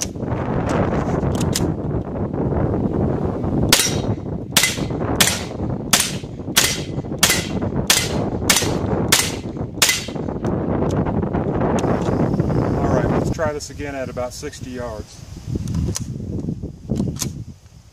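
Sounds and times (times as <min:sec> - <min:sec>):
wind rumbling on microphone: 0:00.0 - 0:17.9
pistol shots: 0:03.8 - 0:10.2.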